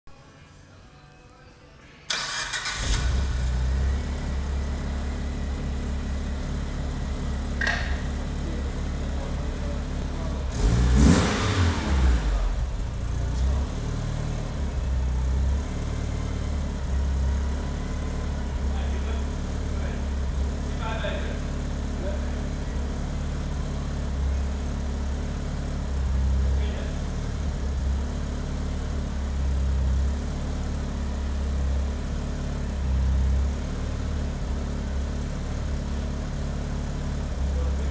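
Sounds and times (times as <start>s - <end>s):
car engine idling: 2.1s - 37.9s.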